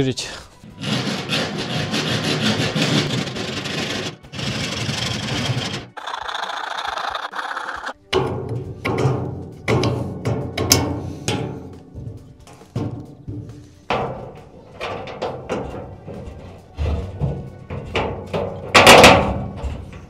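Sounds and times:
hand tool scraping paint off metal: 0.6s - 20.0s.

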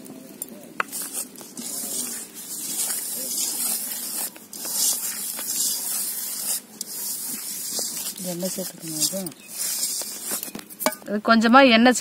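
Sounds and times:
hand rubbing flour in bowl: 0.8s - 10.8s.

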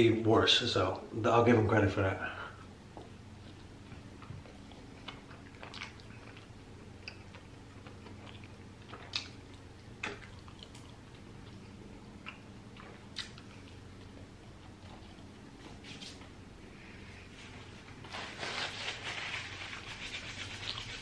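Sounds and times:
person chewing food: 2.9s - 15.8s, 20.3s - 21.0s.

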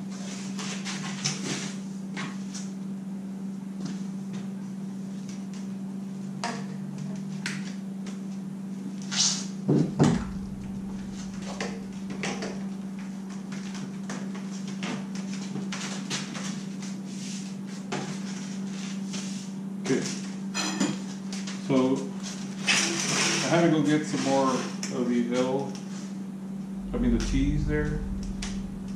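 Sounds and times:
steady low hum: 8.3s - 13.6s, 25.0s - 28.9s.

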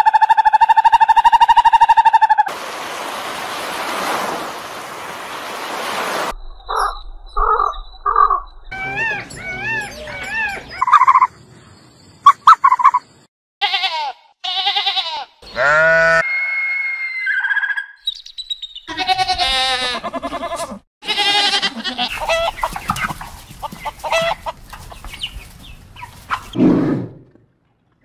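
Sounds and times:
bird calls: 6.7s - 13.3s, 22.1s - 26.6s
sheep bleating: 13.6s - 16.5s, 18.9s - 22.2s.

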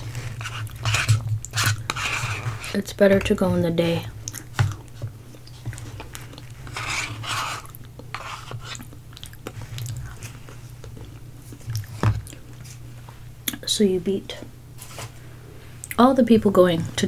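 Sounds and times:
chewing and wet mouth noises: 4.2s - 6.6s, 8.8s - 12.7s.

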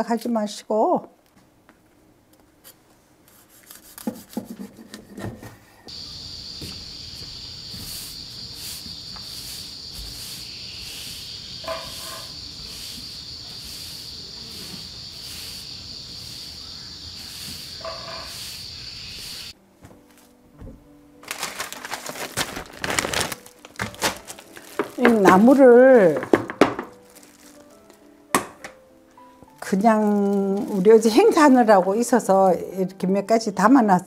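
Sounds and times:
high-pitched insect drone: 5.9s - 19.6s
broom sweeping wooden walkway: 5.9s - 21.0s.

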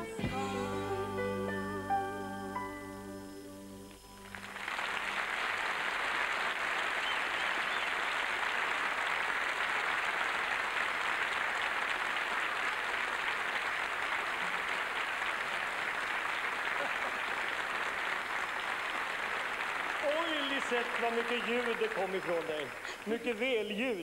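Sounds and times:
song accompaniment: 0.0s - 4.6s
studio audience applauding: 4.2s - 24.0s.

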